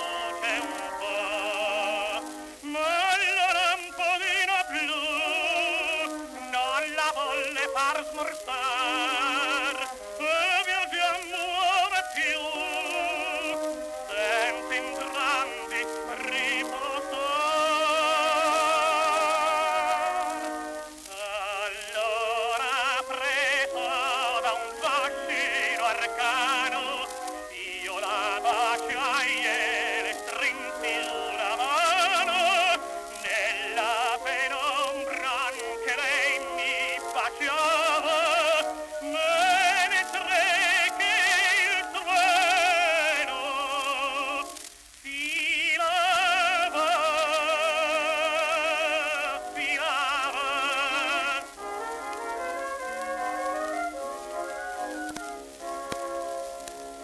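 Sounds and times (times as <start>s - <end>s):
record surface hiss: 0.0s - 57.0s
tenor singing with orchestra: 0.0s - 57.0s.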